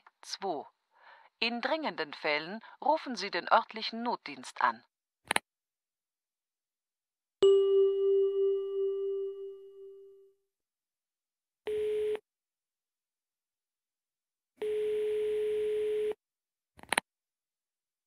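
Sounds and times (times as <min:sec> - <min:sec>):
chime: 0:07.4 - 0:10.2
telephone ringing tone: 0:11.7 - 0:12.2, 0:14.6 - 0:16.2.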